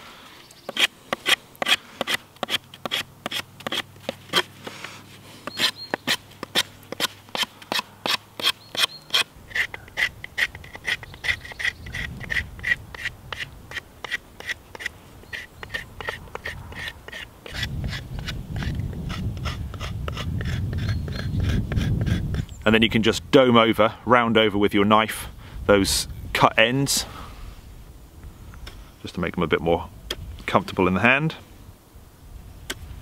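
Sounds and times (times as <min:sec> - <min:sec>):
knife scraping bark off wood: 0:00.6 - 0:22.6.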